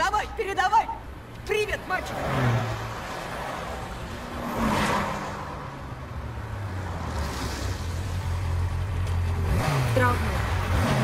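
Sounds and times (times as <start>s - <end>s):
vehicle whooshing past: 2.1s - 5.8s.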